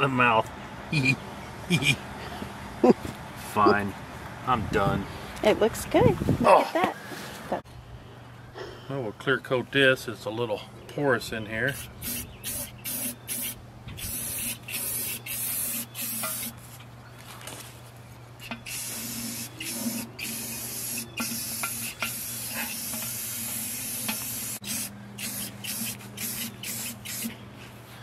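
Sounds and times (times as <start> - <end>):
aerosol spray hissing: 11.7 - 16.5, 18.7 - 27.3.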